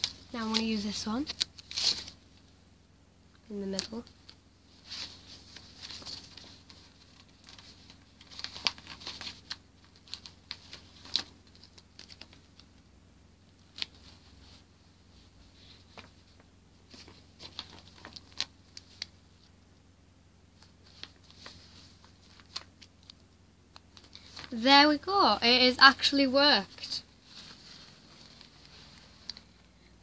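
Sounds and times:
paper rustling and crinkling: 0.0s - 2.2s, 3.8s - 12.7s, 15.2s - 19.5s, 20.6s - 23.2s, 23.9s - 24.8s, 25.5s - 29.7s.

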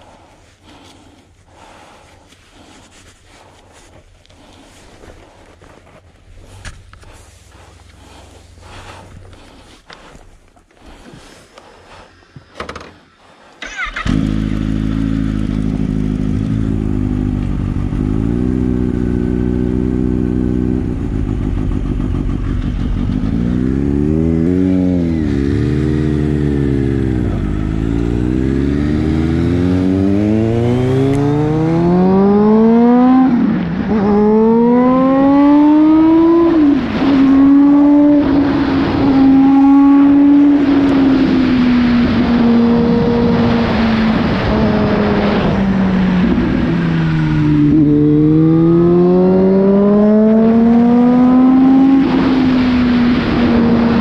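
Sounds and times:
car engine starting and accelerating: 13.6s - 54.0s.

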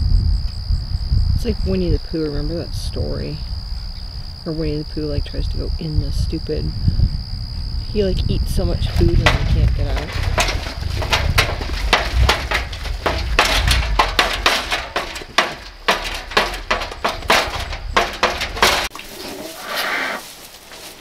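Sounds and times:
low rumble: 6.7s - 18.9s
metal feeder ring clanging: 8.8s - 18.9s.

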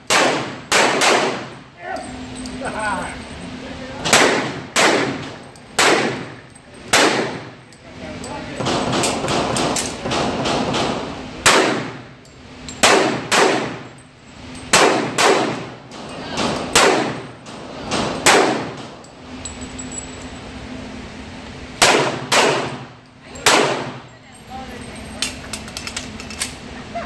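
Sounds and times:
pistol shots echoing indoors: 0.0s - 1.6s, 4.1s - 6.2s, 6.9s - 7.4s, 8.6s - 12.0s, 12.8s - 13.9s, 14.7s - 18.9s, 21.8s - 24.0s.

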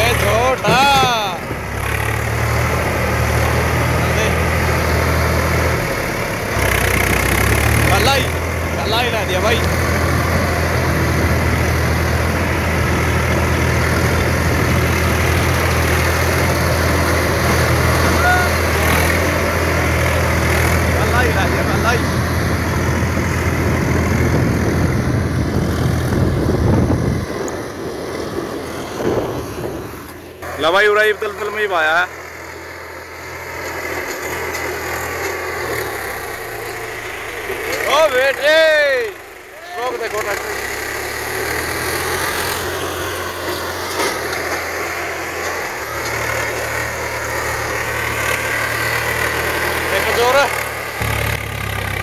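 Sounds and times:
tractor diesel engine under load: 0.0s - 52.0s.

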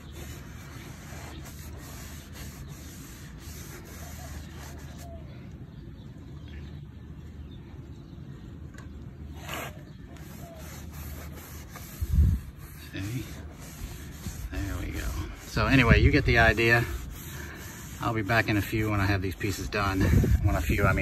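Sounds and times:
rag rubbing on wood: 0.0s - 5.0s, 9.4s - 21.0s.

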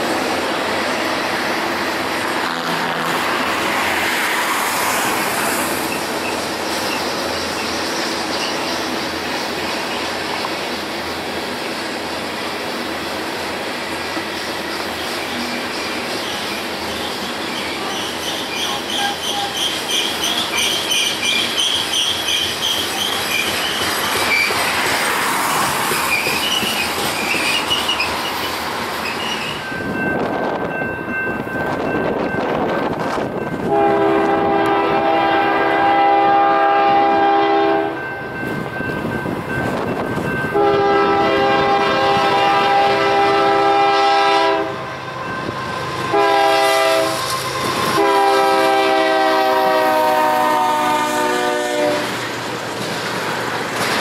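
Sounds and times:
locomotive air horn: 2.3s - 3.4s, 33.6s - 38.0s, 40.5s - 52.2s
train wheels clattering and squealing: 4.0s - 10.8s, 13.7s - 34.4s, 45.0s - 48.3s.

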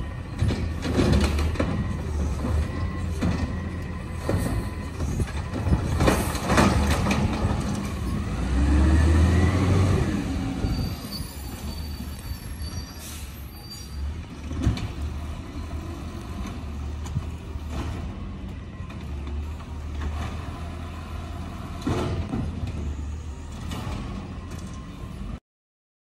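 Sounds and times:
brake squeal: 0.0s - 17.0s
garbage truck engine: 0.0s - 25.4s.

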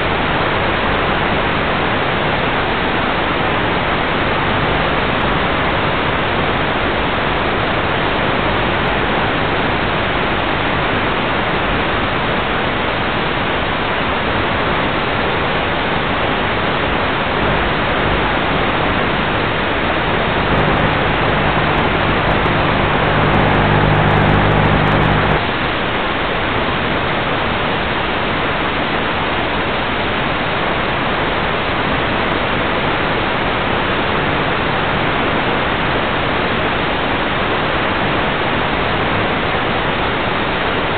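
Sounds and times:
low buzzing hum: 16.4s - 25.5s.

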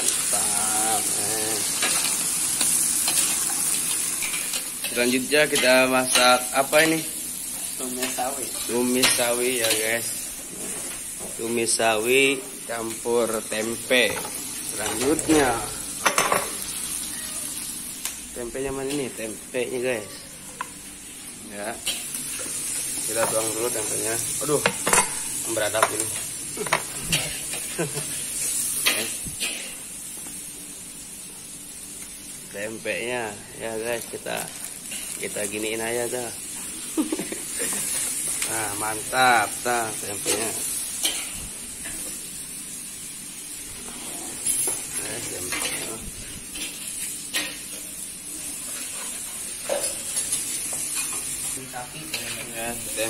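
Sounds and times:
food sizzling in a pan: 0.0s - 53.0s
pans and utensils clattering: 14.0s - 16.6s, 24.6s - 28.2s, 48.7s - 52.5s.

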